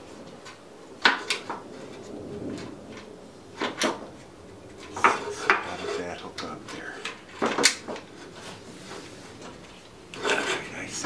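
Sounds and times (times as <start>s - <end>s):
sharp metal clicks and knocks: 0.0s - 8.4s.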